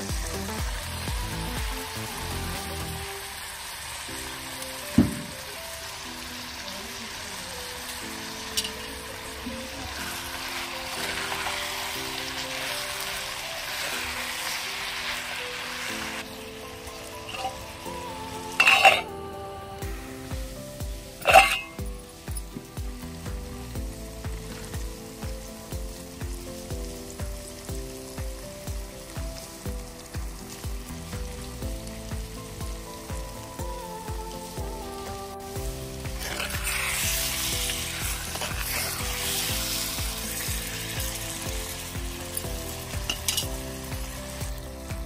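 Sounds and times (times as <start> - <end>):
upbeat electronic music: 0.0 - 3.2
curry sizzling in a pot: 0.0 - 45.0.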